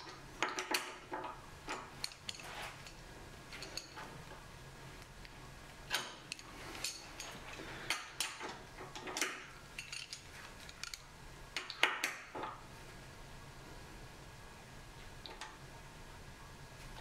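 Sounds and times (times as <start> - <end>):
wrench clinking and scraping on metal: 0.0 - 4.1, 5.9 - 11.0.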